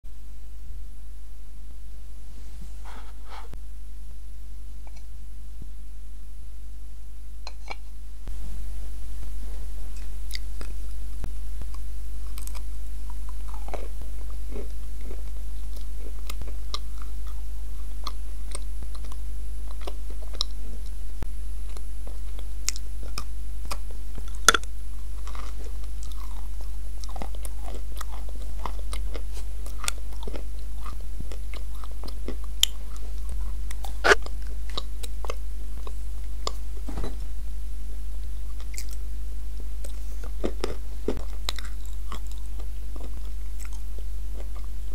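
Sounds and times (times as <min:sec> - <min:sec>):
steady low hum: 0:00.1 - 0:44.9
chewing: 0:10.0 - 0:21.0, 0:21.7 - 0:36.6, 0:38.5 - 0:39.0, 0:39.8 - 0:44.8.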